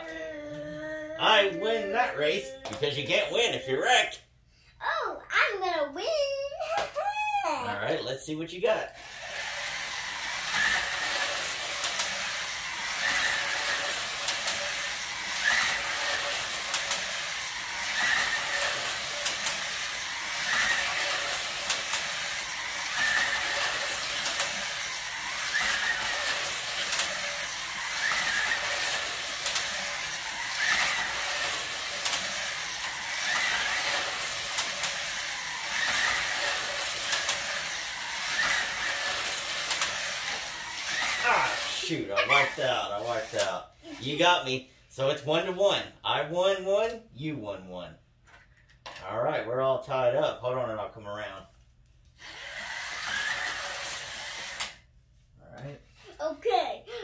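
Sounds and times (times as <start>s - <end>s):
slot car motors whirring: 0.0s - 4.2s, 8.8s - 44.2s, 52.2s - 54.9s.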